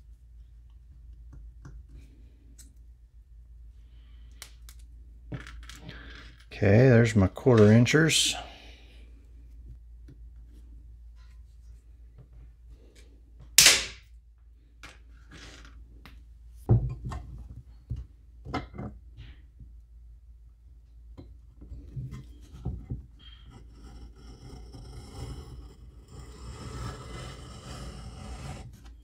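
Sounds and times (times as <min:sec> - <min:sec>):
tool scraping wooden board: 0:22.1 - 0:29.0.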